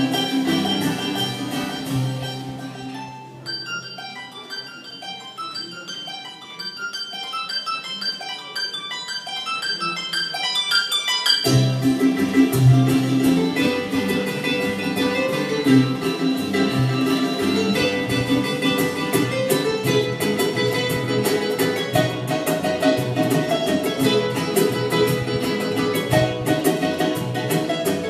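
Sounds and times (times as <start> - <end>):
upright bass: 0.0 - 2.9, 11.5 - 28.0
band playing: 0.0 - 4.2, 11.3 - 28.0
harp plucked notes: 0.0 - 28.0
strummed strings: 0.0 - 28.0.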